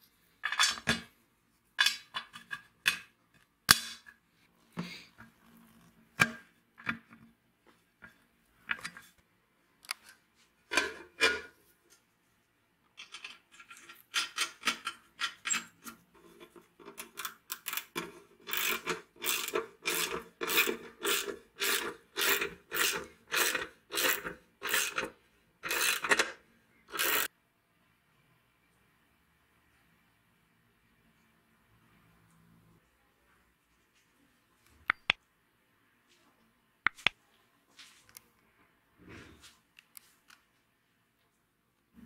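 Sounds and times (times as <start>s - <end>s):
ratchet wrench clicking: 18.5s - 25.0s, 26.9s - 27.3s.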